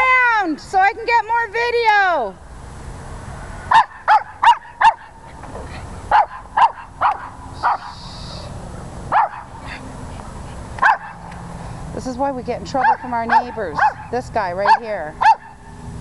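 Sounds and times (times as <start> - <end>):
small dog yapping: 3.7 - 5.1, 6.1 - 8.4, 9.1 - 9.8, 10.8 - 11.2, 12.8 - 15.6.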